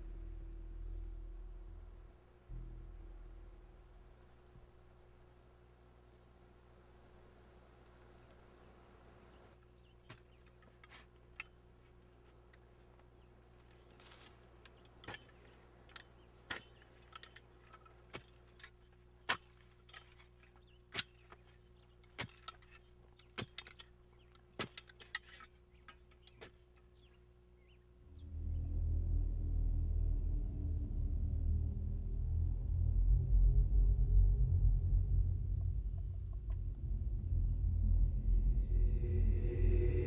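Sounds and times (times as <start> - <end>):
faint steady hum: 0.0 - 40.0
shovel digging into dry earth: 16.4 - 23.9.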